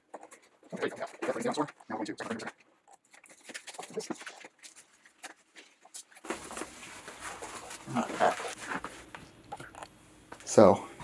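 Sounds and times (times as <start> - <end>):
fabric cover rustling and scraping: 3.2 - 9.3.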